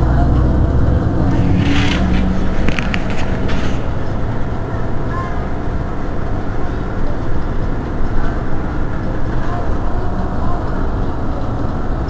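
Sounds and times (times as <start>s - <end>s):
bus engine idling: 0.0s - 12.0s.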